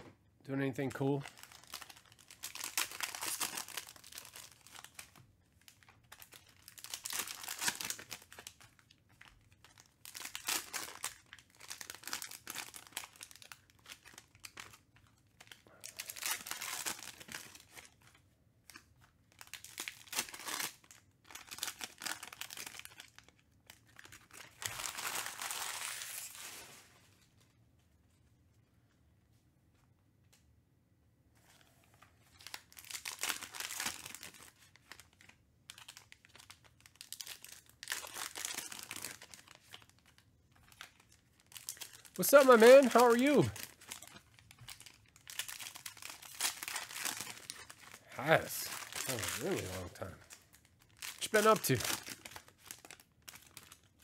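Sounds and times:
foil wrappers crinkling and tearing: 0:01.0 - 0:27.3, 0:32.2 - 0:54.0.

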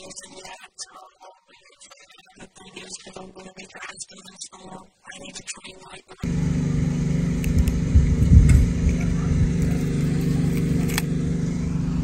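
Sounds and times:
low mechanical hum: 0:06.2 - 0:12.0
low rumble: 0:06.2 - 0:12.0.

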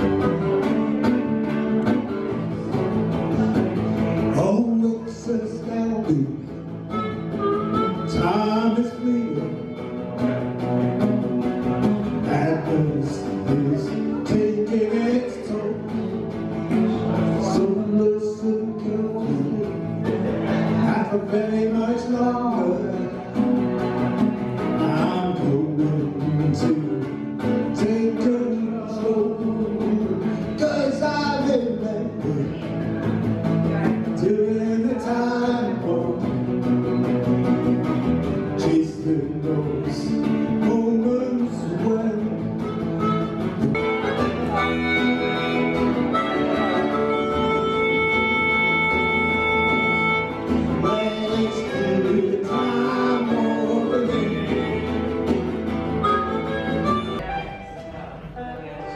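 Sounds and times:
acoustic and electric guitar: 0:00.0 - 0:58.9
harmonica long held notes: 0:06.7 - 0:10.1, 0:42.6 - 0:57.8.

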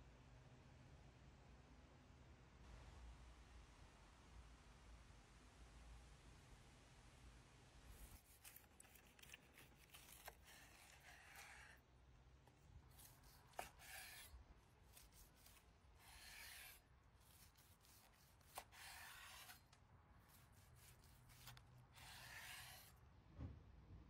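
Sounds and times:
knife sawing through steak: 0:08.0 - 0:11.8, 0:12.9 - 0:19.7, 0:20.3 - 0:23.0.

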